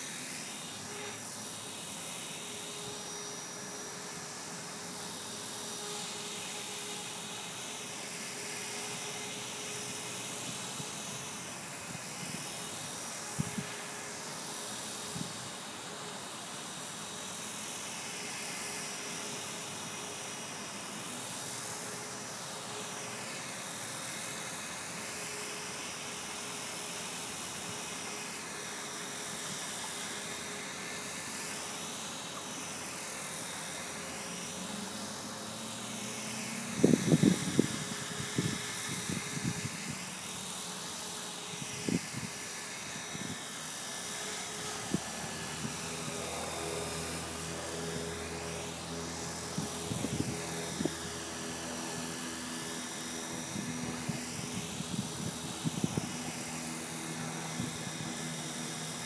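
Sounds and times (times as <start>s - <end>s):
rc helicopter motor whine: 0.0s - 59.0s.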